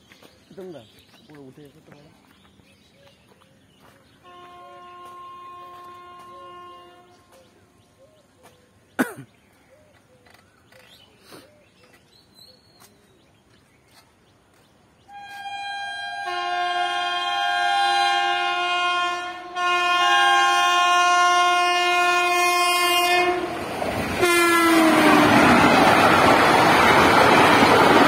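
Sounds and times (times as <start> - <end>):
locomotive horn: 4.2 - 7.4, 15.1 - 23.6, 24.2 - 25.7
train wheels and coaches passing: 20.6 - 28.0.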